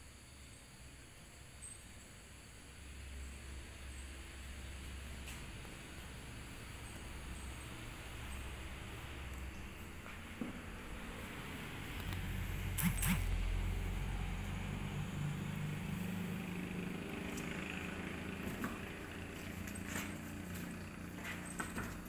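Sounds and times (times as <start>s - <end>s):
low motor hum: 4.7s - 22.0s.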